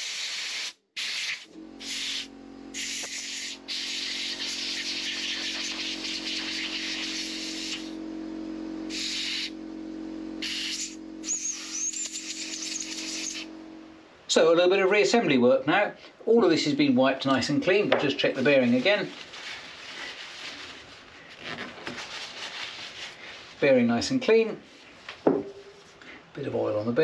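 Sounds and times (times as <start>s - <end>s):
air blow gun hissing: 0.0s - 8.0s, 8.9s - 9.6s, 10.4s - 13.5s
steady low hum: 1.5s - 27.0s.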